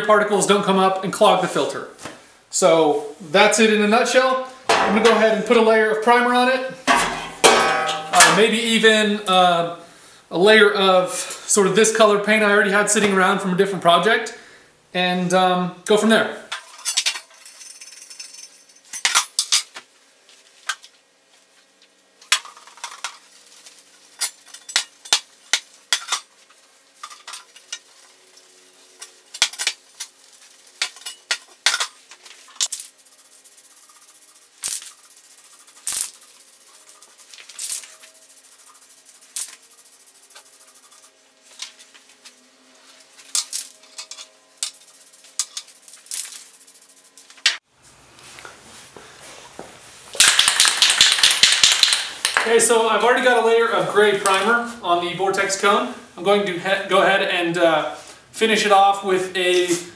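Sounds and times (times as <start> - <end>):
sheet metal clanking on board: 6.9 - 8.4.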